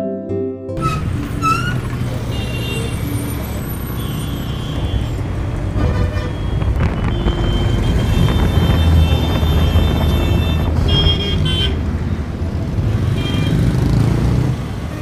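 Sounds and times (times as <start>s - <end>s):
vehicle horn toots: 0.8s - 11.9s, 13.1s - 13.7s
scooter engine and road rumble: 0.8s - 15.0s.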